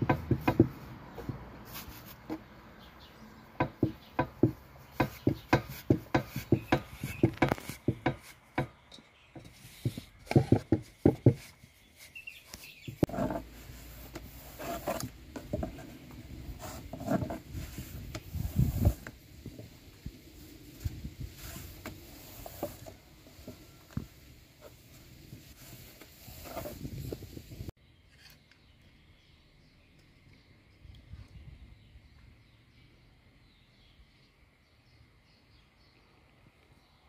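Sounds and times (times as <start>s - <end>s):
dough kneading knocks: 0.0s - 1.5s, 3.6s - 11.5s
dough rubbing and tapping on wood: 0.0s - 2.5s, 3.6s - 19.7s.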